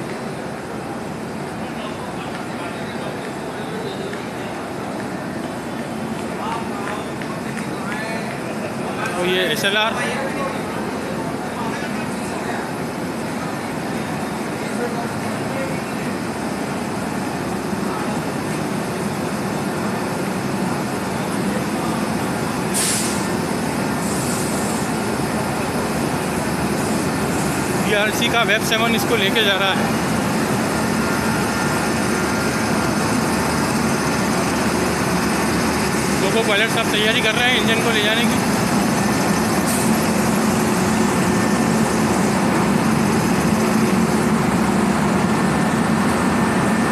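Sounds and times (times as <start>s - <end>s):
locomotive machinery droning: 0.0s - 46.9s
air hiss: 22.7s - 25.0s.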